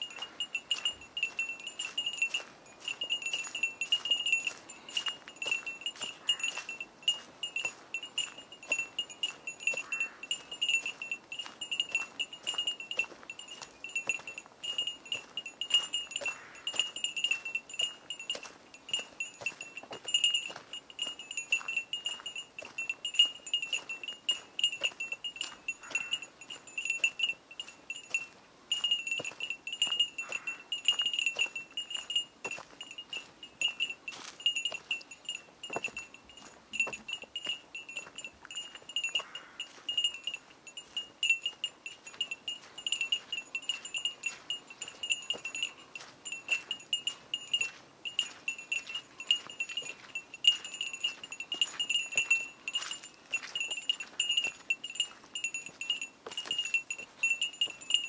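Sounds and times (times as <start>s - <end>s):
footsteps on dry leaves: 0.0s - 41.0s, 42.0s - 55.5s
small bell jingling: 0.0s - 58.0s.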